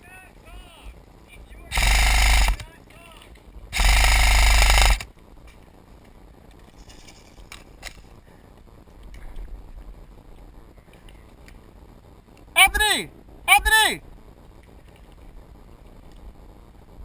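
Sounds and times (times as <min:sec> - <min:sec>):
airsoft rifle full-auto burst: 0:01.7 - 0:02.7, 0:03.7 - 0:05.1.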